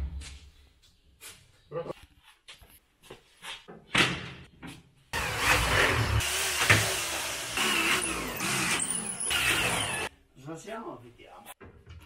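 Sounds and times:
cordless drill driving a screw: 5.2s - 10.1s.

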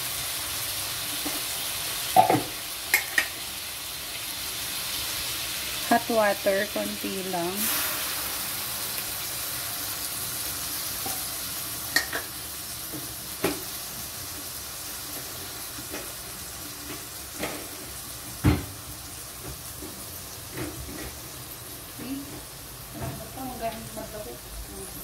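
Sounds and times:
vegetables sizzling in a wok: 0.0s - 25.0s.

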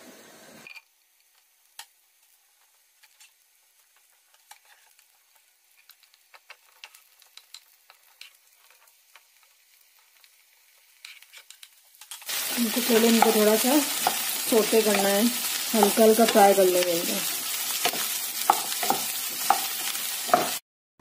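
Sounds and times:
vegetables sizzling in oil: 0.0s - 20.6s
wooden spatula scraping: 11.1s - 20.6s.

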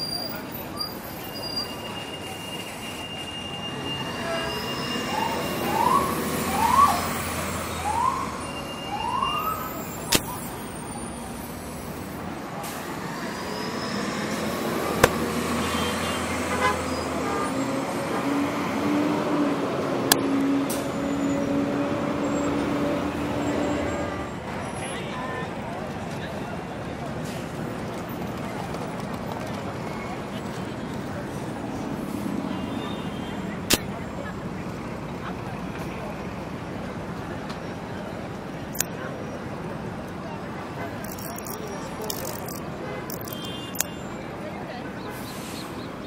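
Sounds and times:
street traffic: 0.0s - 46.0s
sharp clicks: 10.1s - 10.5s, 15.0s - 15.3s, 41.0s - 43.9s.

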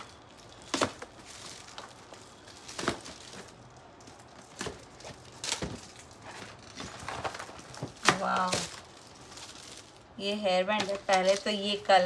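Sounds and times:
cardboard box rustling: 0.5s - 9.8s.

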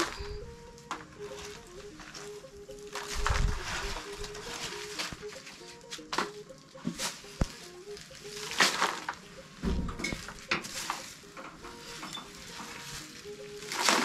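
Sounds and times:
faint background music: 0.0s - 14.0s
dull thud: 9.6s - 10.2s.

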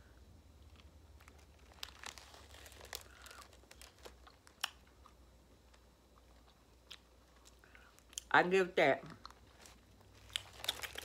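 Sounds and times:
bag crinkling: 1.2s - 4.8s, 9.2s - 11.0s.

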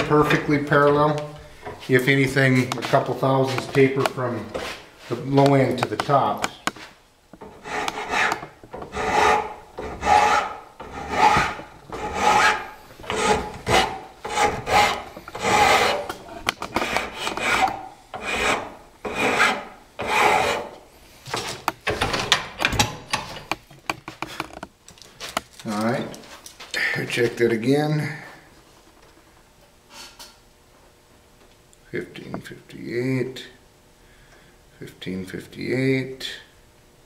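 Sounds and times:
hand file rasping on wood: 7.4s - 20.7s.

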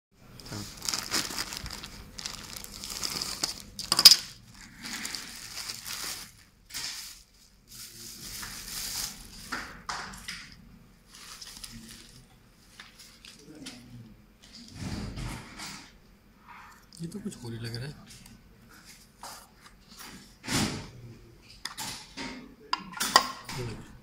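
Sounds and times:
plastic mailer tearing: 0.4s - 7.2s
bubble wrap crinkling: 0.4s - 9.8s, 11.0s - 13.5s.

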